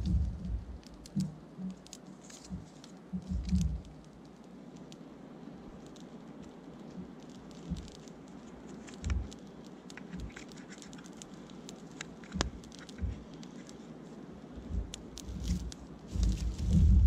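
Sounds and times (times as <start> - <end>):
low thuds: 0.0 - 1.4, 14.6 - 17.0
fire crackling and popping: 0.0 - 17.0.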